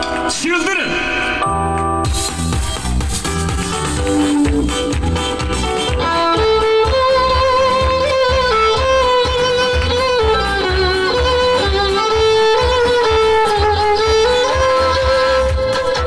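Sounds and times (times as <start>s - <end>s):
backing track with steady beat: 0.0s - 16.0s
people clapping along: 0.0s - 16.0s
violin melody: 3.2s - 16.0s.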